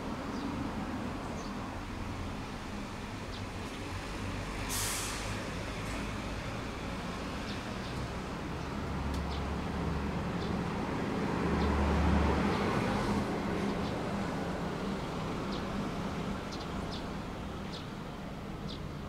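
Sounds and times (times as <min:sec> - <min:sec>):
road traffic rumble: 0:00.0 - 0:19.0
short sharp hiss: 0:04.7 - 0:05.4
vehicle passing: 0:06.0 - 0:17.1.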